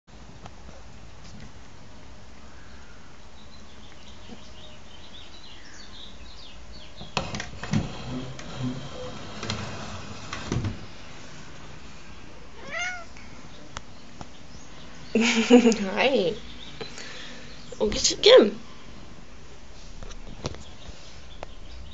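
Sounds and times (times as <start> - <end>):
cat meowing: 12.6 - 13.2.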